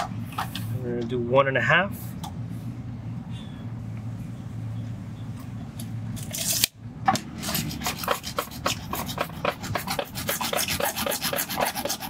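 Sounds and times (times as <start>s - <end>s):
hacksaw cutting plastic pipe: 6.3s - 12.0s.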